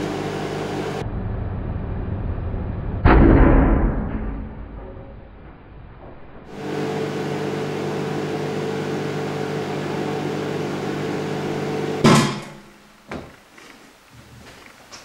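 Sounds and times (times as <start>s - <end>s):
microwave oven humming: 0.0s - 3.0s, 6.4s - 13.0s.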